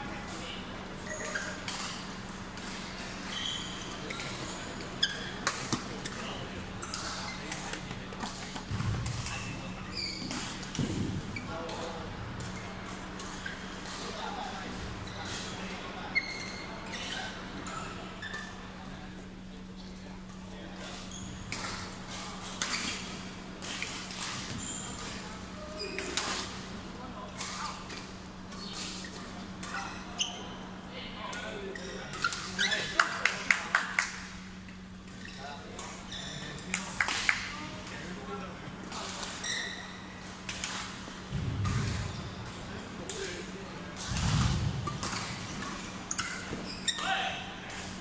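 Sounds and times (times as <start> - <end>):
steady low hum: 0.0 - 16.1, 40.1 - 46.7
shoes squeaking on court floor: 0.3 - 13.9, 14.6 - 18.7, 20.8 - 23.2, 24.2 - 26.2, 28.4 - 30.8, 31.7 - 33.0, 34.7 - 36.8, 39.0 - 47.2.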